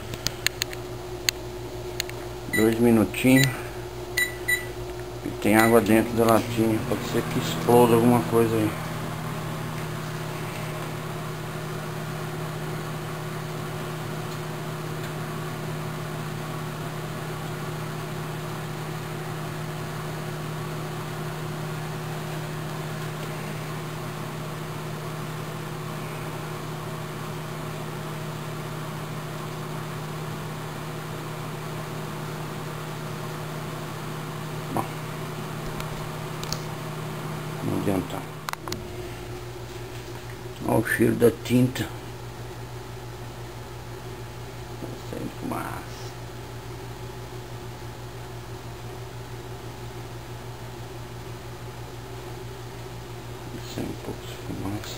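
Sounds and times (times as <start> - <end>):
microwave oven humming: 0.0 - 54.9
microwave click: 4.2 - 6.5.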